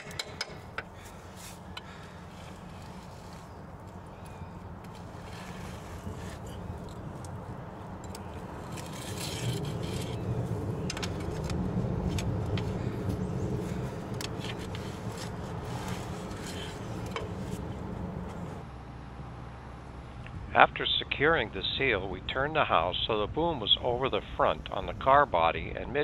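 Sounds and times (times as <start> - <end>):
steady low rumble: 0.0 - 26.0
metal scraper scraping clicks: 8.0 - 10.2.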